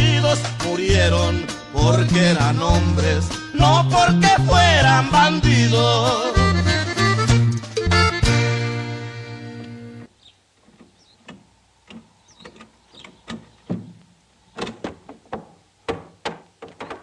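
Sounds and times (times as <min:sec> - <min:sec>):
accordion tune: 0:00.0 - 0:10.1
hooves on trailer floor: 0:10.6 - 0:17.0
trailer door knocks and clatters: 0:10.7 - 0:14.0, 0:14.6 - 0:17.0.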